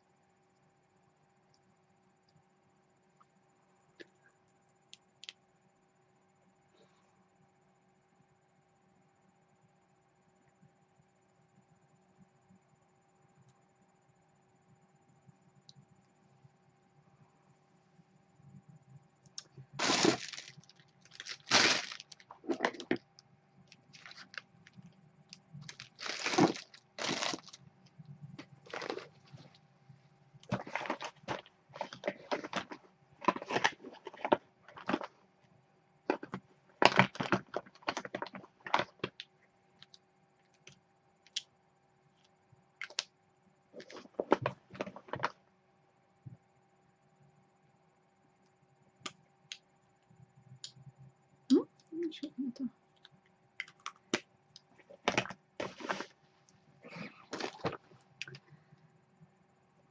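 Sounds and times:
makeup items clicking and rustling: 0:19.8 - 0:23.1, 0:23.7 - 0:24.8, 0:25.6 - 0:27.6, 0:28.4 - 0:29.6, 0:30.4 - 0:35.2, 0:36.1 - 0:40.0, 0:43.8 - 0:45.3, 0:53.6 - 0:56.1, 0:56.9 - 0:58.4.

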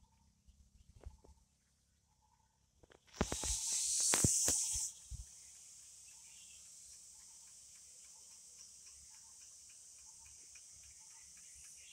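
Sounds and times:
short insect chirps and ticks: 0:02.8 - 0:11.9
high-pitched insect drone: 0:03.2 - 0:11.9.

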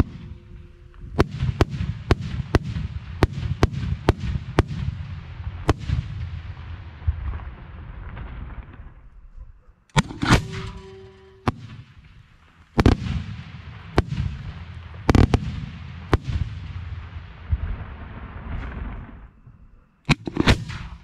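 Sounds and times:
low rumble: 0:00.0 - 0:03.6
firework shells bursting: 0:09.9 - 0:16.4, 0:20.1 - 0:21.0.

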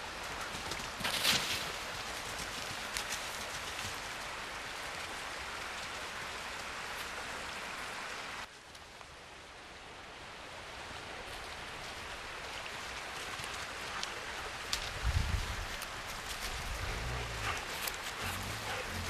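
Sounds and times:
stream rushing: 0:15.4 - 0:19.0.

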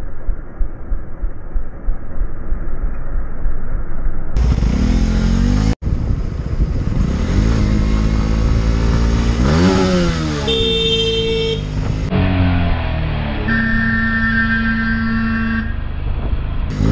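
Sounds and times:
motorcycle engine revving: 0:04.4 - 0:16.9
steady horn-like tone: 0:10.5 - 0:11.6, 0:13.4 - 0:15.8.

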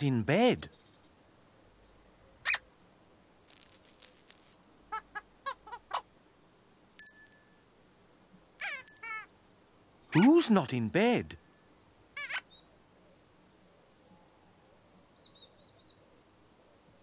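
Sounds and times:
bright chime-like ring: 0:07.0 - 0:07.6, 0:08.6 - 0:09.3, 0:11.1 - 0:11.8.

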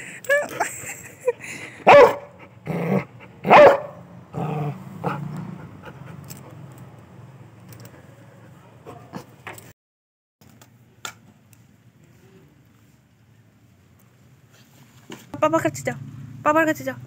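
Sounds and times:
dog barking: 0:01.8 - 0:02.4, 0:03.4 - 0:04.0
dog yipping: 0:01.9 - 0:02.3, 0:03.5 - 0:04.0
dog growling: 0:02.5 - 0:03.5, 0:04.3 - 0:06.3.

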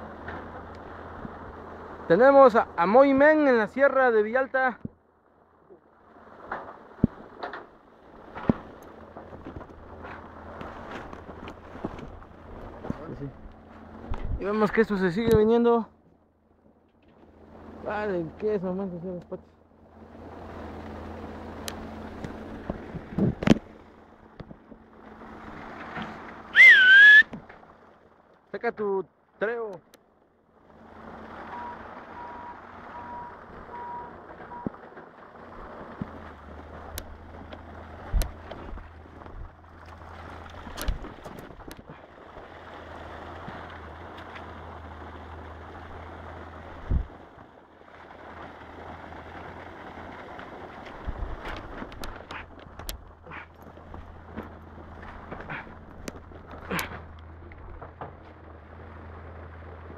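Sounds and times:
loud swooping whistle: 0:26.5 - 0:27.3
low rumble: 0:30.3 - 0:59.9
wind on microphone: 0:46.8 - 0:47.3, 0:51.0 - 0:53.0.

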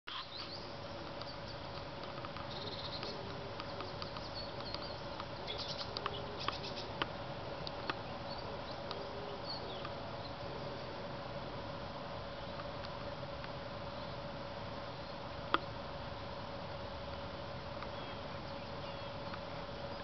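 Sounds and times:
small animals chirping and clicking: 0:00.1 - 0:10.4, 0:17.1 - 0:20.0
steady faint hum: 0:00.1 - 0:20.0.

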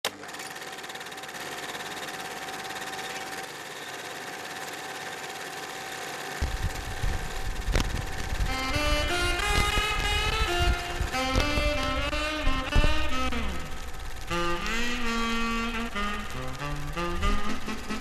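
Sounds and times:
film projector clattering: 0:00.0 - 0:18.0
low rumble: 0:06.4 - 0:17.9.

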